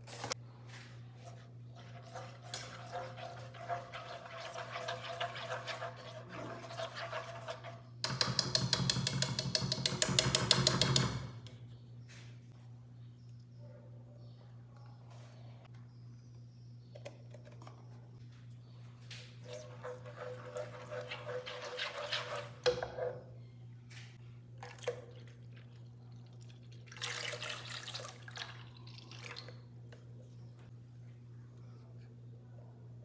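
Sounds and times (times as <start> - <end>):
milk pouring and splashing: 1.8 - 7.8, 19.4 - 22.6, 24.6 - 29.8
low steady hum: 11.3 - 33.0.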